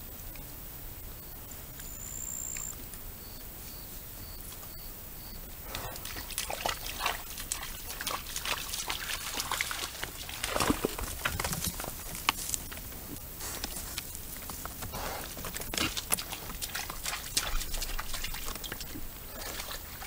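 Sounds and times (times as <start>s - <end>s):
animal splashing through shallow water: 5.7s - 20.0s.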